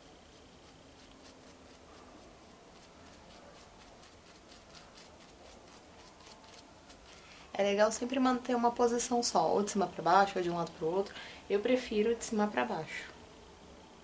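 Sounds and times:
paintbrush scratching on fabric: 0.0s - 7.3s.

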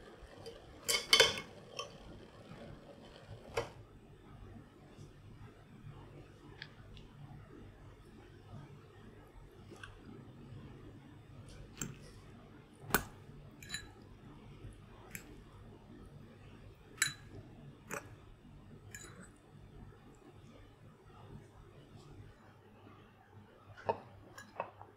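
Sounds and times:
faint room noise: 0.0s - 24.9s
fork clinking against ceramic bowl: 13.6s - 14.0s, 17.0s - 17.3s, 18.9s - 19.3s.

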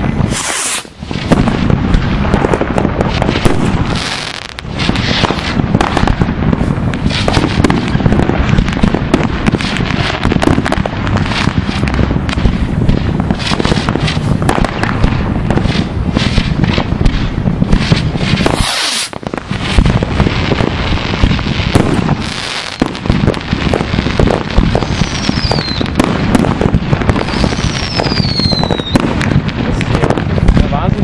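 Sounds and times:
fireworks bangs and crackles: 0.0s - 31.0s
rushing hiss: 0.3s - 1.0s, 18.4s - 19.2s.

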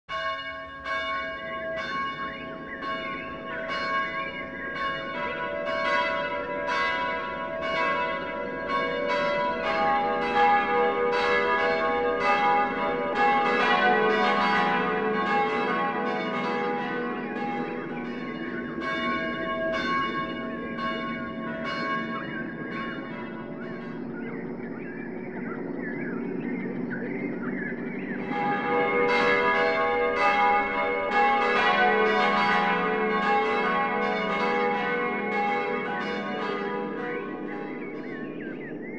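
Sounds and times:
church bells ringing: 0.1s - 38.9s.

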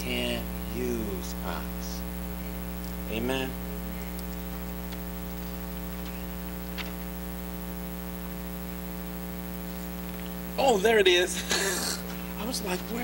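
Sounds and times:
electrical mains hum: 0.0s - 13.0s
faint clicks: 3.7s - 7.0s.

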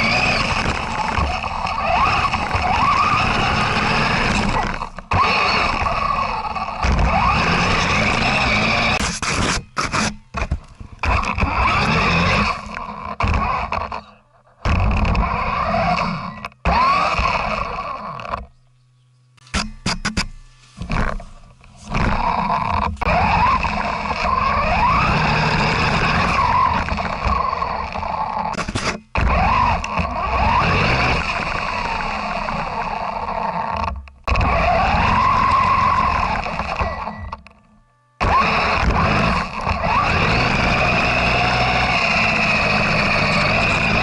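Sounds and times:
tyres rumbling through snow: 0.0s - 9.2s, 11.1s - 13.8s, 20.6s - 33.6s, 34.3s - 37.0s, 38.2s - 44.0s
electric motor and gear whine: 0.0s - 44.0s.

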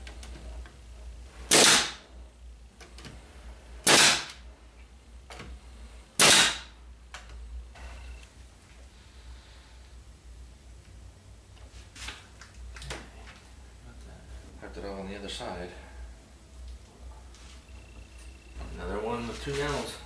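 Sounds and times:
pneumatic nail gun firing: 1.5s - 2.0s, 3.8s - 4.4s, 6.2s - 6.7s.

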